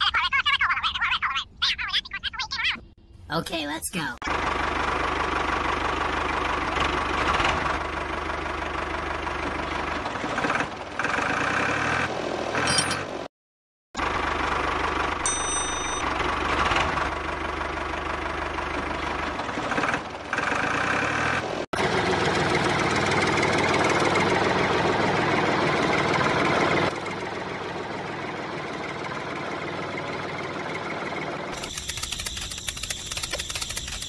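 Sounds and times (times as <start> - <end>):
tractor engine knocking: 4.3 - 11.4, 16.1 - 20.7, 21.8 - 34.0.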